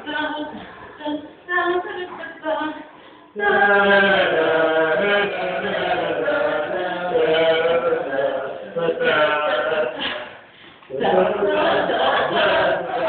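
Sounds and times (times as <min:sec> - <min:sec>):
choir singing: 0:03.4 - 0:13.0.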